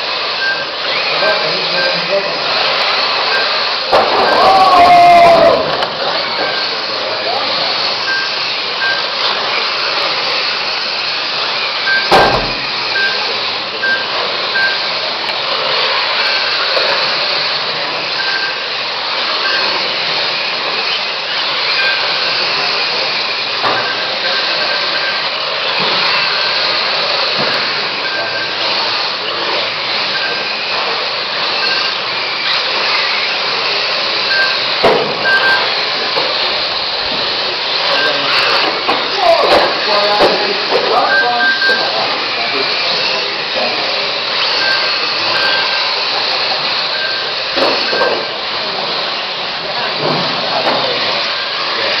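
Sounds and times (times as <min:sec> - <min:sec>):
electric toy car motors whining: 0:00.0 - 0:52.0
short high beeps: 0:00.4 - 0:00.7, 0:03.2 - 0:03.6, 0:04.2 - 0:04.9, 0:06.2 - 0:06.8, 0:07.4 - 0:09.2, 0:11.8 - 0:15.0, 0:18.1 - 0:18.7, 0:19.4 - 0:19.9, 0:21.7 - 0:22.2, 0:23.6 - 0:25.3, 0:27.4 - 0:28.7, 0:30.0 - 0:30.6, 0:34.2 - 0:35.9, 0:37.8 - 0:42.3, 0:44.4 - 0:45.9, 0:46.8 - 0:48.3
sharp knock: 0:12.1 - 0:12.6.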